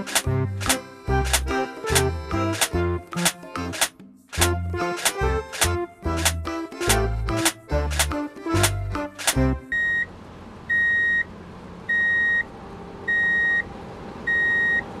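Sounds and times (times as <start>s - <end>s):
background music: 0.0s - 9.8s
reversing alarm beeping: 9.7s - 10.1s, 10.7s - 11.3s, 11.9s - 12.5s, 13.1s - 13.7s, 14.3s - 14.9s.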